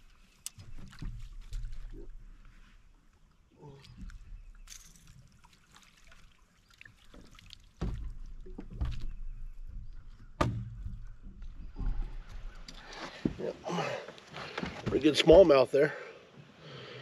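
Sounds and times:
water splashing and dripping: 0.0s - 15.6s
thumps on boat deck: 10.3s - 12.1s.

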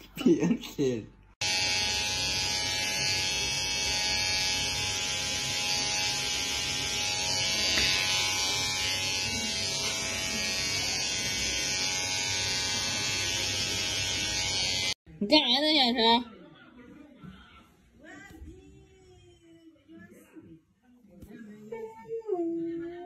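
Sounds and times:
electric hair clipper buzzing: 1.4s - 15.0s.

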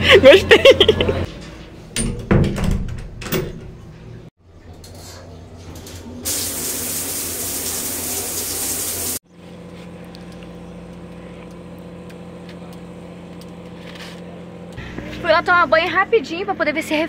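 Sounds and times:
shower head spraying water: 6.3s - 9.2s
low mechanical hum: 9.3s - 17.0s.

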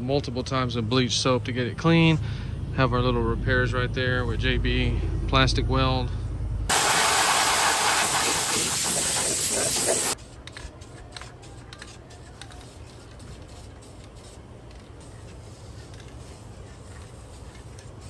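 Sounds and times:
aerosol spray can hissing: 6.7s - 18.0s.

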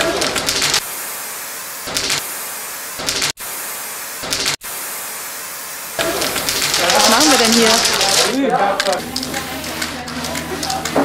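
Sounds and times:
spray-paint can hissing: 0.0s - 11.0s.

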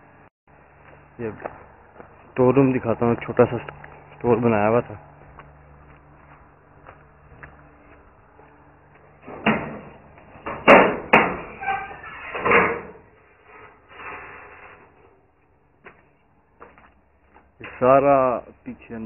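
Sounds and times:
metal door rattling: 9.2s - 13.1s
sheet-metal door bangs and clatters: 9.3s - 13.0s
door squeak: 10.7s - 13.0s.

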